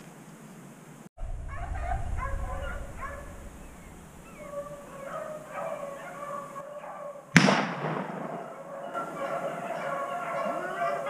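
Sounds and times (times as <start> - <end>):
hounds baying: 1.5 - 7.3, 8.2 - 11.0
shotgun shot echoing: 7.3 - 8.6.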